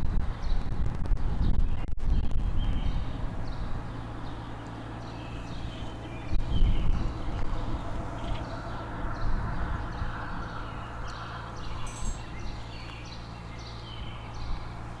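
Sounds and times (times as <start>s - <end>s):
low steady rumble: 0.0s - 15.0s
small birds chirping: 1.4s - 15.0s.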